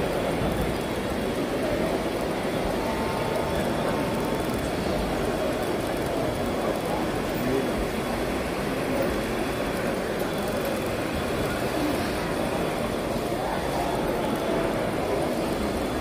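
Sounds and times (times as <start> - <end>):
murmur of voices: 0.0 - 16.0.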